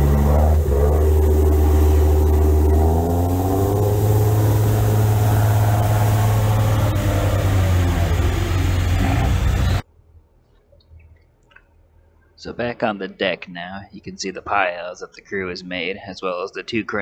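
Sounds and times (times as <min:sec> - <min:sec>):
rushing water: 0:00.0 - 0:09.8
speedboat engine running hard: 0:00.0 - 0:09.8.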